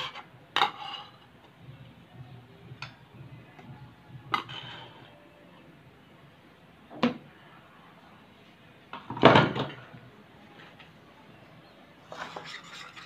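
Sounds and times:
bowl and spoon clatter: 0:12.1 - 0:13.0.

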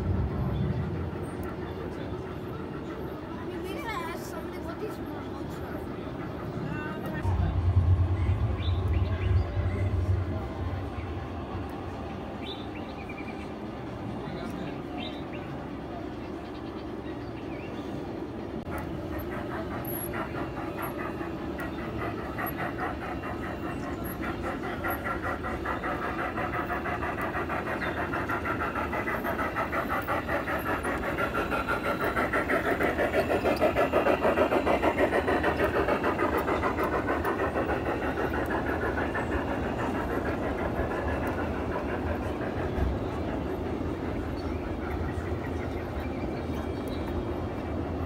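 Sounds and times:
model train clattering: 0:18.7 - 0:48.0.

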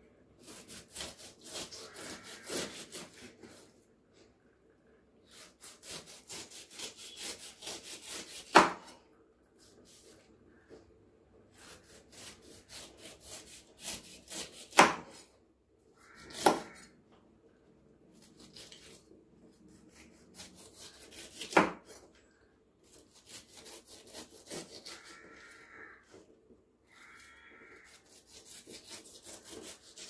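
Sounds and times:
knife rasping through rind: 0:00.4 - 0:03.7, 0:05.3 - 0:08.6, 0:11.6 - 0:14.8, 0:18.2 - 0:22.0, 0:22.8 - 0:25.6, 0:27.8 - 0:30.0.

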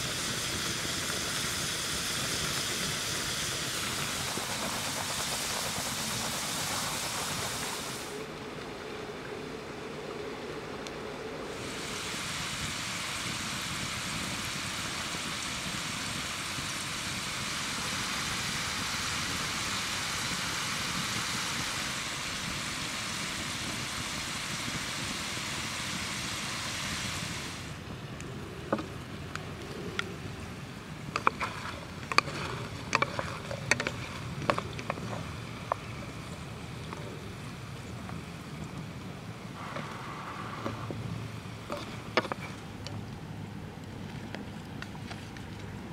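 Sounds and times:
flowing river water: 0:00.0 - 0:45.9
fries sizzling in oil: 0:11.5 - 0:27.8.

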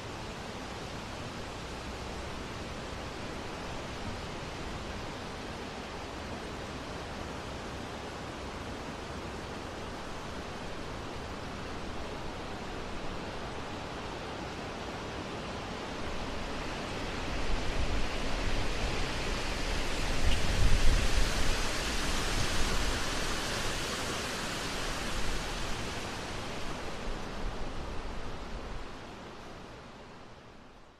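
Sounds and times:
steady rushing noise: 0:15.9 - 0:29.3.

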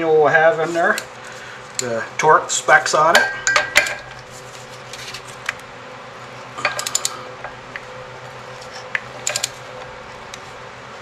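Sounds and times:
steady low hum: 0:00.0 - 0:11.0
torque wrench clicks: 0:06.6 - 0:07.2, 0:09.2 - 0:09.6.

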